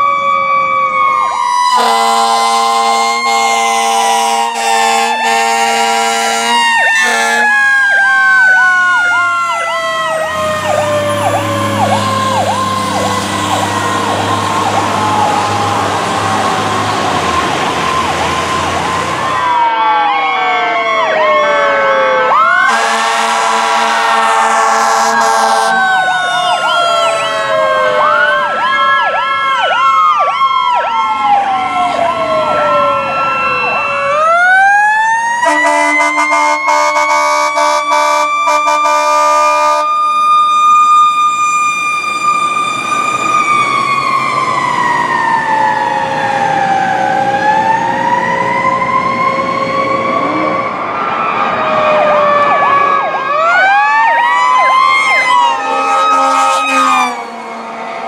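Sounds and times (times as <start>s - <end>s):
fire truck siren: 0.0s - 58.0s
air horn blasts: 1.7s - 7.6s, 22.6s - 26.1s, 35.4s - 40.0s, 55.6s - 57.9s.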